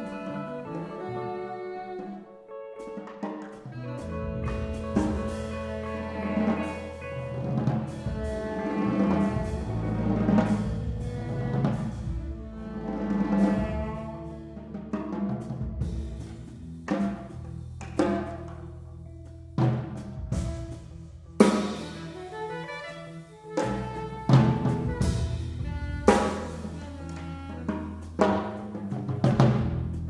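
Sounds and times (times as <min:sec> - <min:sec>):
drums striking: 0:02.9 - 0:18.8, 0:19.6 - 0:30.0
held pitched chords: 0:03.6 - 0:14.9
sustained low bass notes: 0:03.8 - 0:22.4, 0:23.7 - 0:30.0.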